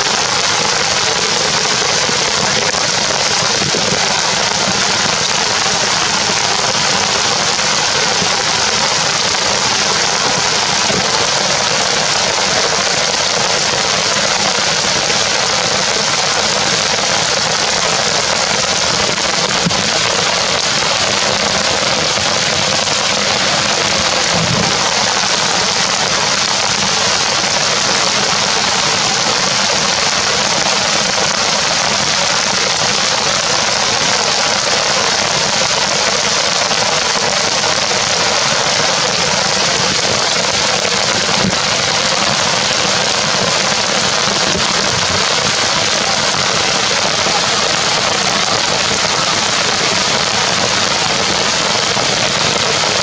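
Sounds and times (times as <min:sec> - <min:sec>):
heavy rain hissing: 0:00.0 - 0:53.0.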